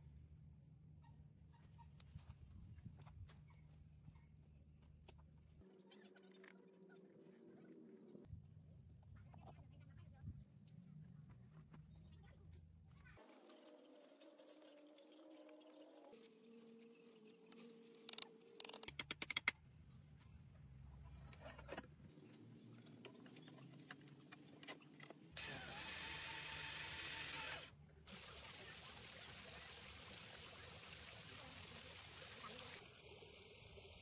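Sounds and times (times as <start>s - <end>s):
running water: 27.4s - 34.0s.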